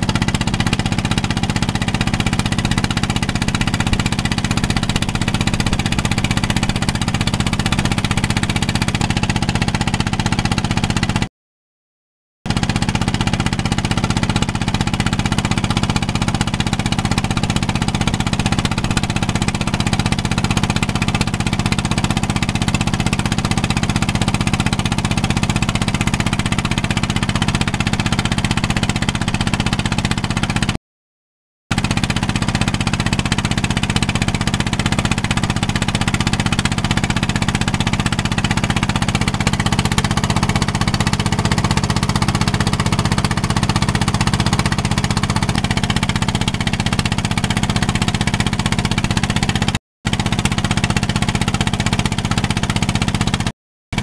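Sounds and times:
boat engine droning: 0:00.0 - 0:10.9, 0:31.8 - 0:53.4.

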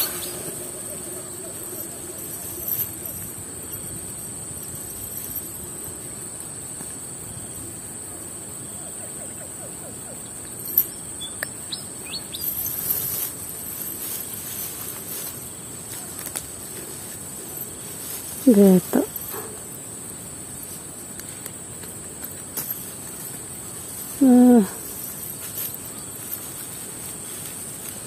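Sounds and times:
bird chirps: 0:00.0 - 0:02.6, 0:08.8 - 0:12.6
insects droning: 0:00.0 - 0:28.0.

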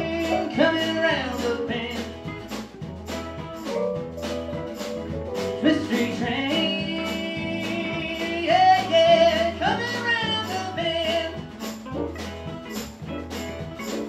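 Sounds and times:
man singing: 0:00.0 - 0:02.4, 0:05.6 - 0:11.5
country-rock band playing: 0:00.0 - 0:14.0.

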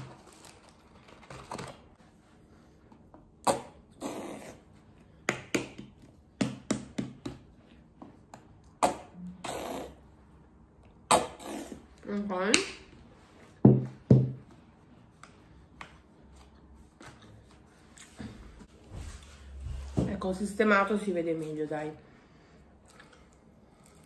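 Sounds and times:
paper packaging rustling: 0:00.0 - 0:02.0.

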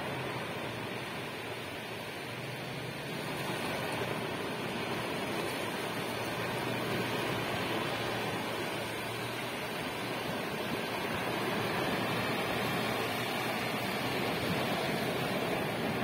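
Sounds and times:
waves washing over pebble beach: 0:00.0 - 0:16.0.

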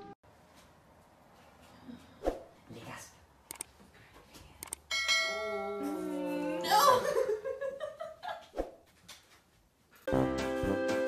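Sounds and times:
laughter: 0:06.8 - 0:08.6.

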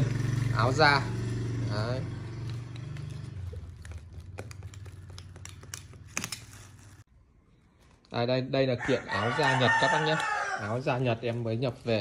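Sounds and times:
plastic wrapping crinkling: 0:02.4 - 0:08.2.

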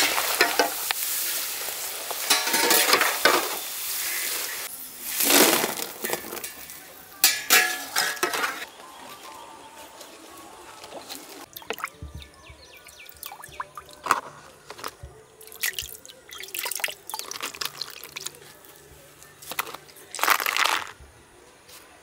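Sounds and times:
water splashing in a pot: 0:00.0 - 0:08.6, 0:11.4 - 0:12.1, 0:13.0 - 0:14.2, 0:15.4 - 0:18.5.

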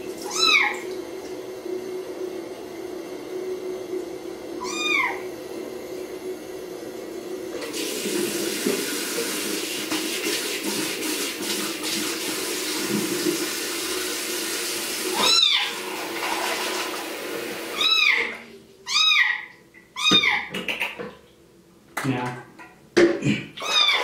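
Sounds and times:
kitten meowing: 0:00.2 - 0:00.8, 0:04.6 - 0:05.2, 0:15.1 - 0:15.7, 0:17.7 - 0:20.5, 0:23.6 - 0:24.0
sink tap running: 0:07.5 - 0:18.3.

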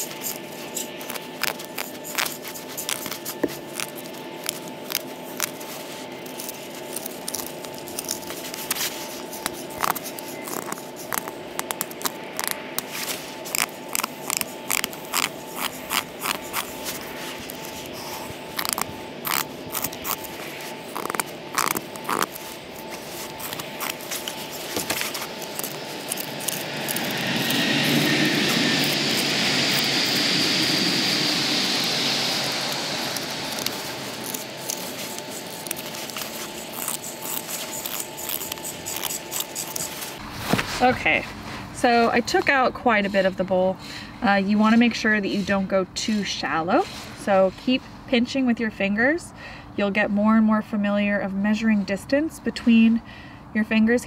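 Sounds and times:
knife scraping wood: 0:00.0 - 0:30.2, 0:31.7 - 0:41.0
steady rushing noise: 0:08.4 - 0:41.9.

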